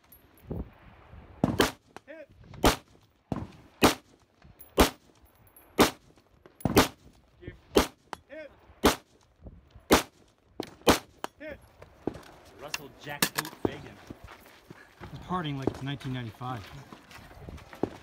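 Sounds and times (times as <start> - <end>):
rifle shots: 1.4 - 1.9, 2.6 - 2.9, 3.8 - 4.1, 4.8 - 5.0, 5.8 - 6.0, 6.6 - 7.0, 7.7 - 8.0, 8.8 - 9.1, 9.9 - 10.2, 10.8 - 11.2.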